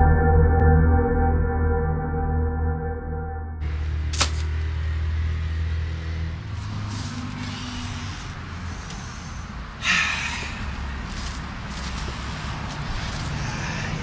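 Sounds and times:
motor vehicle passing: 3.6 - 14.0
street ambience: 3.6 - 14.0.

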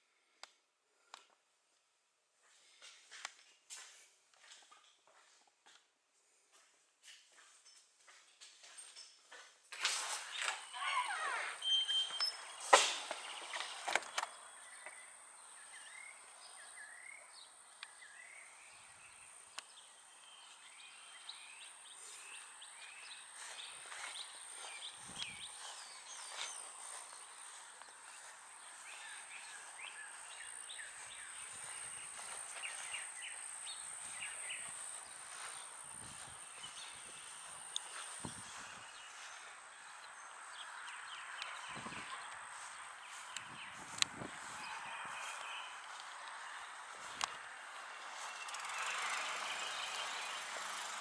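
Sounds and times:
birds chirping: 10.2 - 51.0.

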